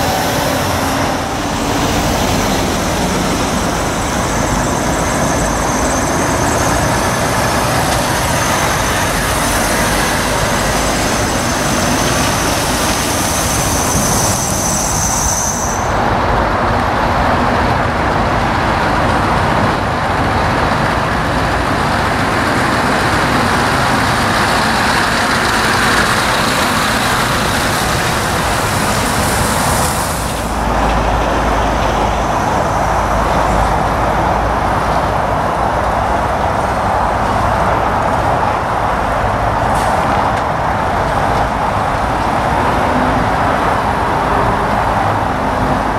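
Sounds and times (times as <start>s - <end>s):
lorry diesel engines: 0.0s - 45.9s
road noise: 0.0s - 45.9s
thin high whistle: 13.1s - 16.0s.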